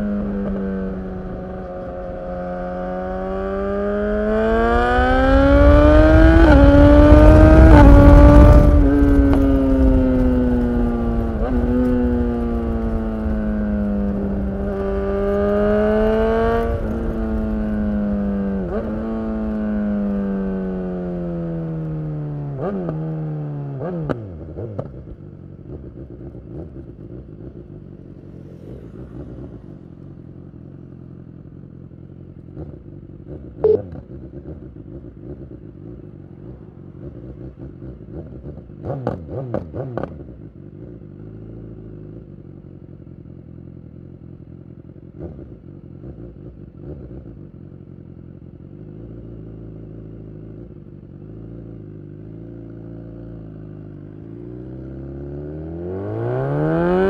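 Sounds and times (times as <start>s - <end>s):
motorcycle engine idling: 24.9s - 38.8s, 40.2s - 52.6s.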